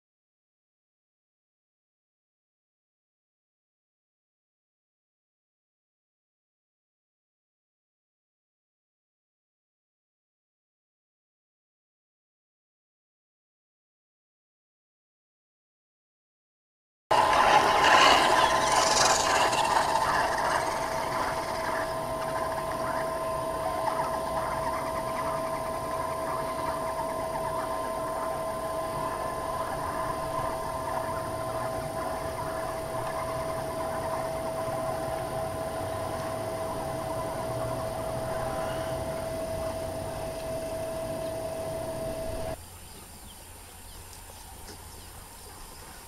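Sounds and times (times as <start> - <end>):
toy truck motor whine: 17.1 - 42.6.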